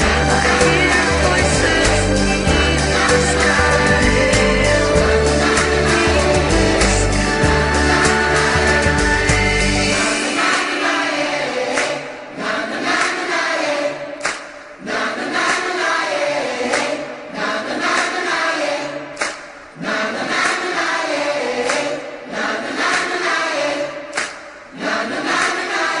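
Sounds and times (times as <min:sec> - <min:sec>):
choir singing: 0:00.0 - 0:26.0.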